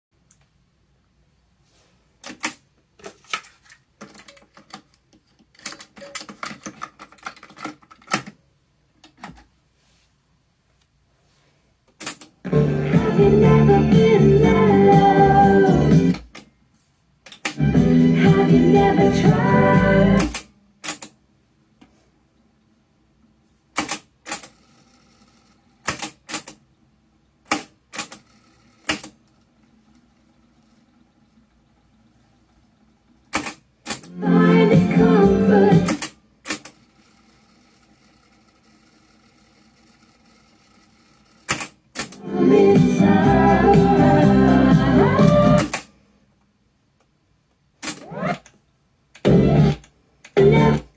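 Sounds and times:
cassette plastic clicks and clatters: 0:02.2 - 0:08.4
music from cassette deck: 0:12.5 - 0:16.4, 0:17.4 - 0:20.5, 0:33.9 - 0:36.7, 0:42.0 - 0:45.9, 0:49.2 - 0:50.9.

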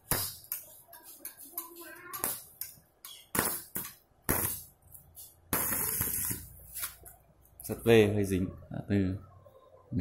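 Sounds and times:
welding arc crackling: 0:05.5 - 0:07.0.

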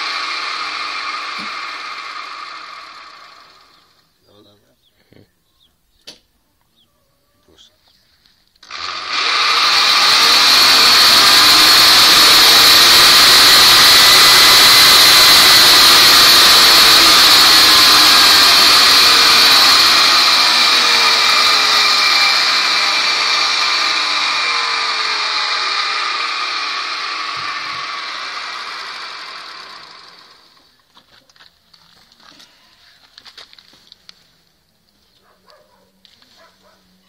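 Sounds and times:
electric motor revving: 0:00.0 - 0:04.0, 0:08.6 - 0:30.7.

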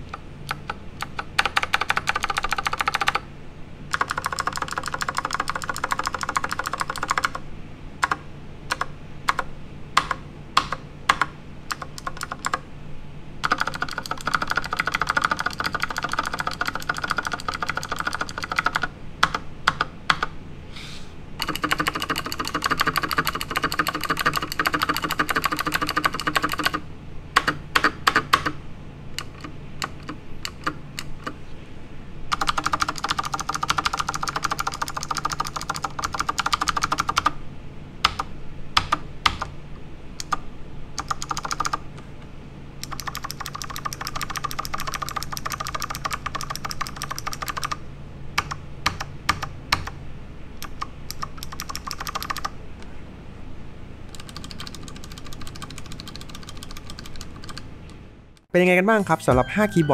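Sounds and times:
mechanical keyboard typing: 0:00.0 - 0:03.2, 0:03.9 - 0:07.4, 0:08.0 - 0:12.6, 0:13.4 - 0:20.3, 0:21.4 - 0:26.8, 0:27.4 - 0:28.6, 0:29.2 - 0:31.4, 0:32.3 - 0:37.4, 0:38.0 - 0:39.5, 0:40.2 - 0:40.4, 0:41.0 - 0:41.8, 0:42.8 - 0:47.8, 0:48.4 - 0:50.0, 0:50.6 - 0:52.5, 0:54.1 - 0:57.6.

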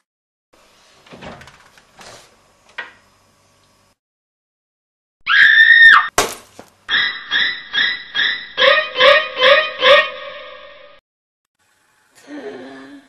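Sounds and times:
fridge door opening: 0:01.0 - 0:02.8
egg smashing on tiled floor: 0:06.1 - 0:06.7
high-pitched shriek: 0:06.9 - 0:11.0.

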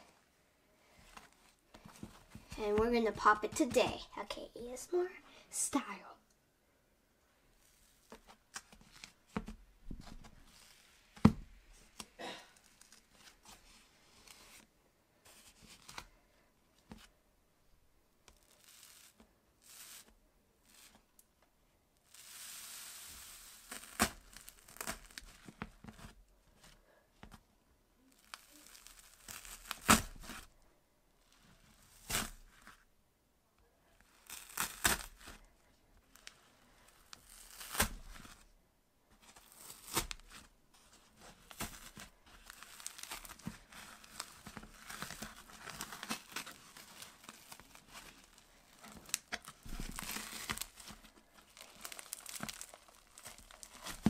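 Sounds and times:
crunchy slime crackling: 0:23.4 - 0:25.5, 0:28.1 - 0:30.4, 0:34.0 - 0:35.3, 0:41.5 - 0:54.0.

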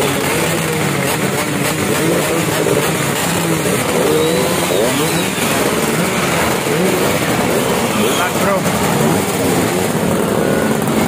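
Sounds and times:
motorcycle engines revving: 0:00.0 - 0:11.0.

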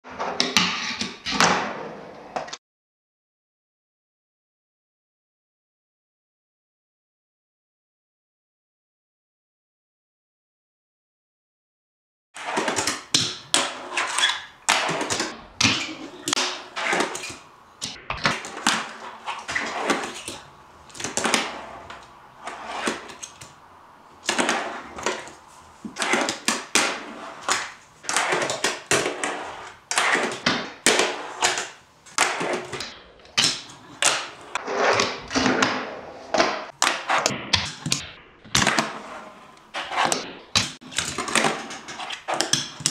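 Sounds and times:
small wheels rolling and grinding: 0:12.4 - 0:37.3.

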